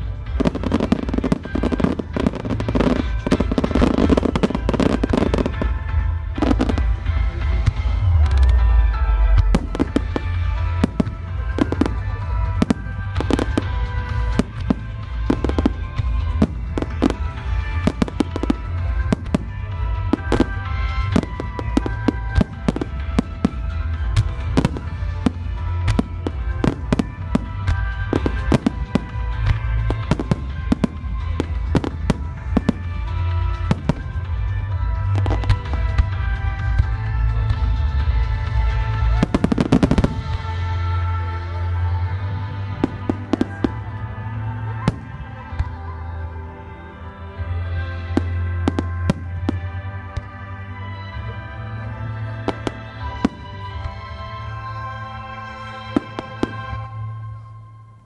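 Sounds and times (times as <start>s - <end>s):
fireworks bursting: 0.0s - 45.9s, 47.6s - 57.4s
continuous low rumble: 0.0s - 58.0s
music: 0.0s - 58.0s.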